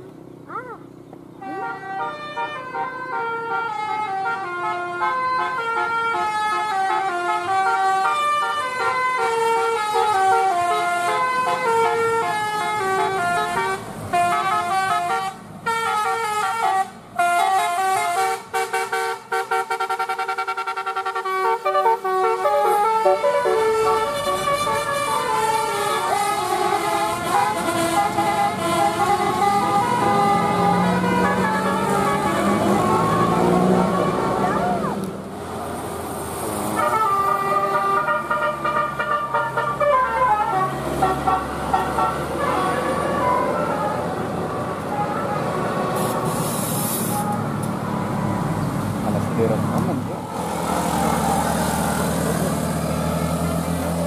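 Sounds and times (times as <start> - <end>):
bus engine: 0.0 - 54.0
multi-tone air horn melody: 1.4 - 34.9, 36.7 - 43.7.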